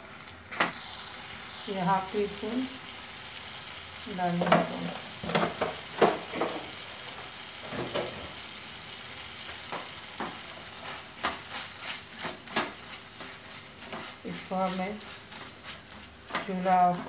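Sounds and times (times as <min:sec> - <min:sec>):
meat sizzling in a frying pan: 0:00.0 - 0:17.0
spatula scraping and tapping pan: 0:09.6 - 0:17.0.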